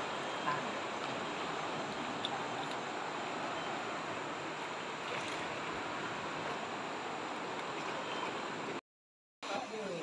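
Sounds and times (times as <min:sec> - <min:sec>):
river water rushing against boat: 0:00.0 - 0:08.8.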